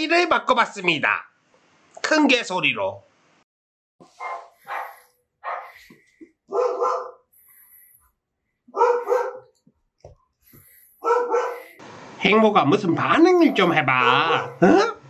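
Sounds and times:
large dog barking: 0:04.2 - 0:05.8, 0:06.5 - 0:07.2, 0:08.7 - 0:09.5, 0:11.0 - 0:11.8, 0:13.4 - 0:15.0.

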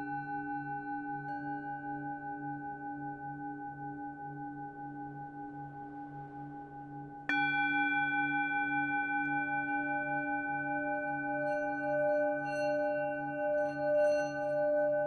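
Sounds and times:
singing bowl drone: 0:00.0 - 0:15.0
singing bowl struck and ringing: 0:07.3 - 0:15.0.

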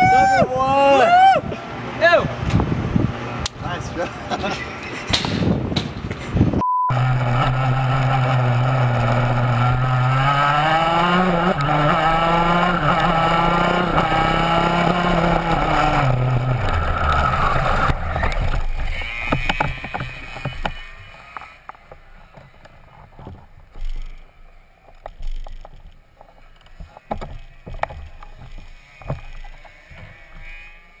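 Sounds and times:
kart engine running: 0:06.9 - 0:21.2.

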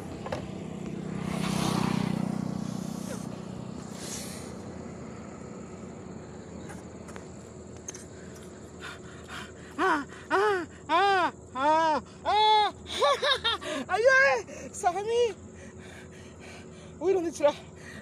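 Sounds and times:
vehicle passing by: 0:00.0 - 0:07.6.

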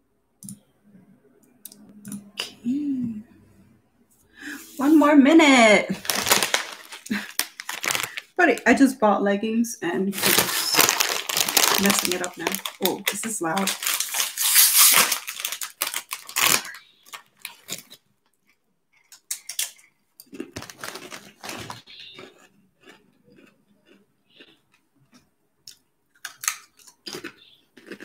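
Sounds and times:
plastic chip bag crinkling: 0:04.8 - 0:08.8, 0:10.1 - 0:24.5, 0:26.1 - 0:28.0
chips crunching: 0:06.0 - 0:08.6, 0:10.2 - 0:28.0.

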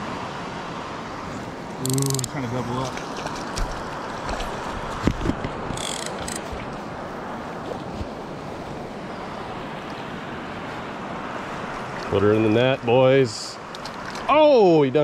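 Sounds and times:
moving water: 0:00.0 - 0:15.0
wind: 0:00.0 - 0:15.0
fishing reel drag ticking: 0:01.8 - 0:02.3, 0:05.8 - 0:06.5.

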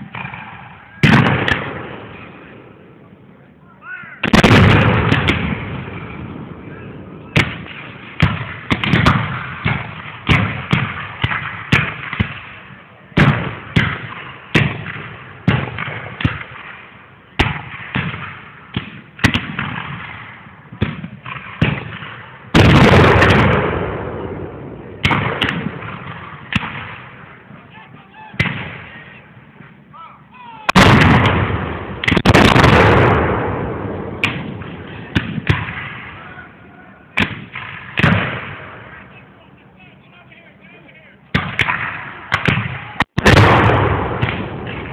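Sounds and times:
musket shots: 0:00.0 - 0:02.5, 0:04.2 - 0:06.3, 0:07.3 - 0:12.6, 0:13.2 - 0:24.3, 0:25.0 - 0:27.3, 0:30.7 - 0:36.2, 0:37.2 - 0:39.0, 0:41.3 - 0:44.9.

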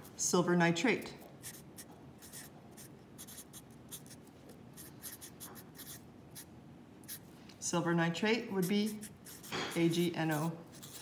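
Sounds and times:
marker writing on paper: 0:01.4 - 0:06.5, 0:08.6 - 0:11.0.

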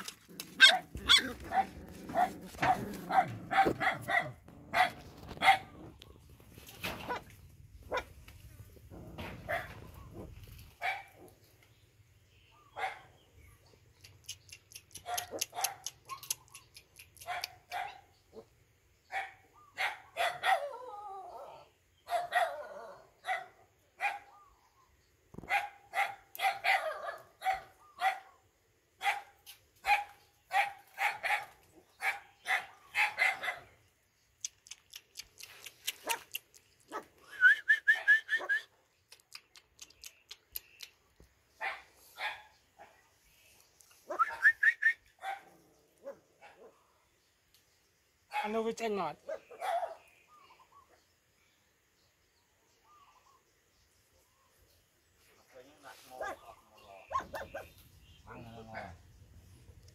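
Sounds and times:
puppies yipping and barking: 0:00.0 - 0:11.1, 0:14.1 - 0:18.1, 0:56.1 - 0:59.0.

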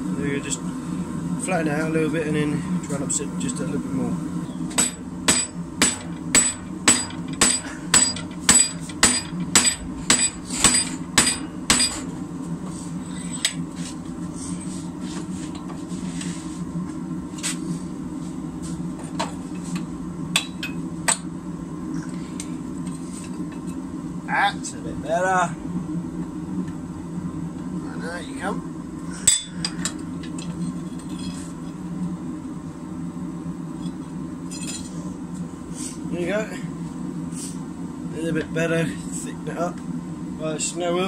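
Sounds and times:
hammer striking metal: 0:04.8 - 0:12.0.

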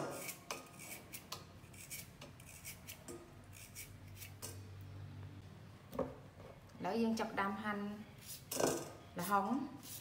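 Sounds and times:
knife slicing carrot: 0:00.0 - 0:04.4.

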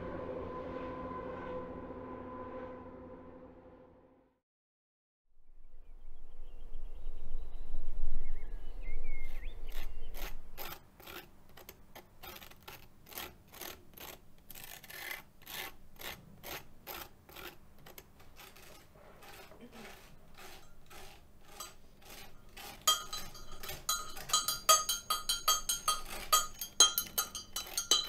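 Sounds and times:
low outdoor rumble: 0:00.0 - 0:04.0
faint bird chirps: 0:05.6 - 0:10.5
knife scraping toast: 0:09.7 - 0:28.0.

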